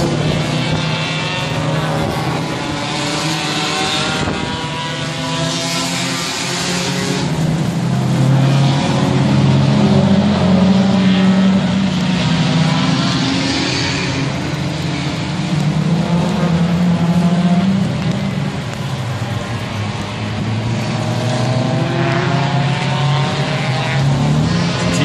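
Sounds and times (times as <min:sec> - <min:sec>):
race car engines revving: 0:00.0 - 0:25.0.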